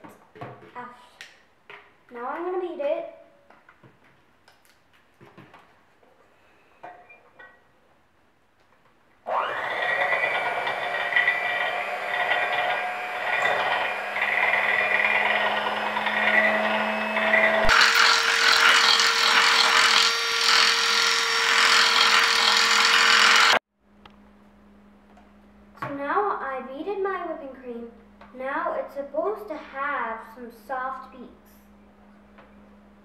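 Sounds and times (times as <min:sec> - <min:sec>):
electric hand mixer running: 0:09.3 - 0:23.6.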